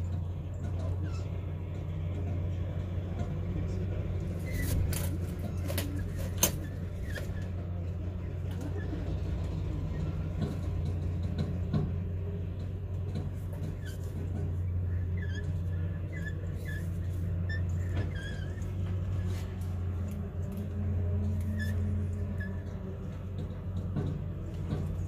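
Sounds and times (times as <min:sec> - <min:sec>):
short high squeaks: 0:13.6 - 0:19.9, 0:21.3 - 0:22.8.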